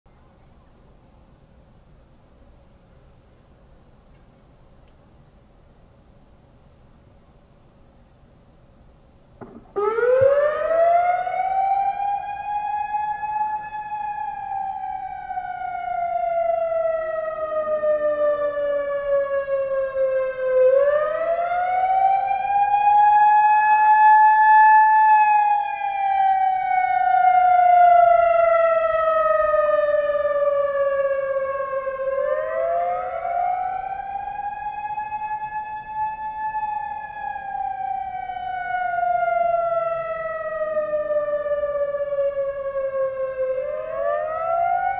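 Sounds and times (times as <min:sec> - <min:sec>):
warning siren wailing: 0:09.4 - 0:44.9.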